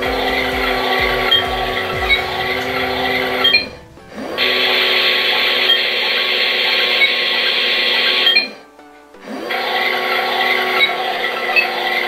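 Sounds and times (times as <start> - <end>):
small water pump whining: 0.0 - 8.4.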